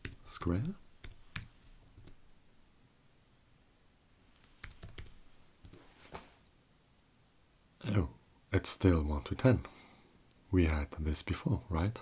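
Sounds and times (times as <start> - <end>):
computer keyboard keystrokes: 0.0 - 2.2, 4.6 - 5.8.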